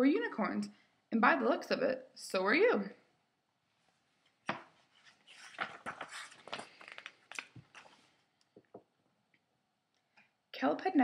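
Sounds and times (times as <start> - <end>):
paper pages rustling: 4.2 - 8.4.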